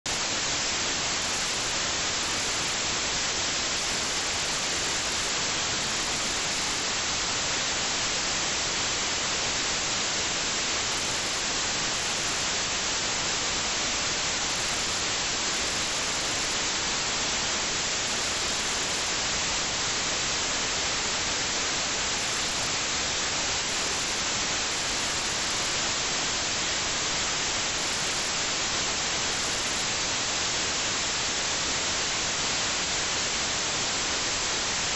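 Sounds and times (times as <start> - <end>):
steady static hiss: 0.0 - 34.9.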